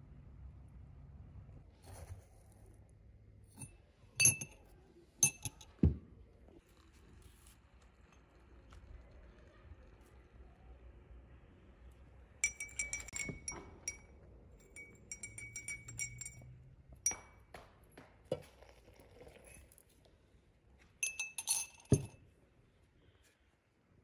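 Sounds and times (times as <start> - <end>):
teaspoon clinking in glass: 3.6 - 4.6, 5.2 - 5.8, 12.4 - 17.4, 21.0 - 22.2.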